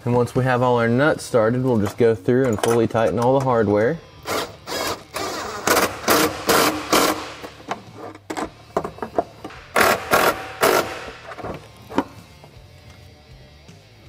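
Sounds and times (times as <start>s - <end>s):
cordless impact tool bursts: 4.3s - 7.6s, 9.5s - 11.5s.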